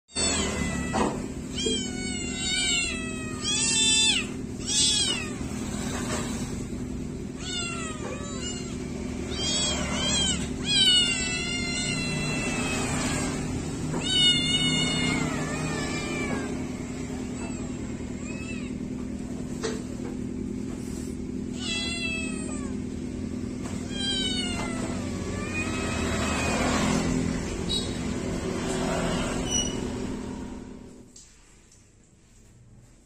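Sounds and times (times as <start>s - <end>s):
kittens meowing: 0.1s - 5.7s, 7.2s - 19.0s, 21.5s - 23.0s, 23.7s - 27.1s.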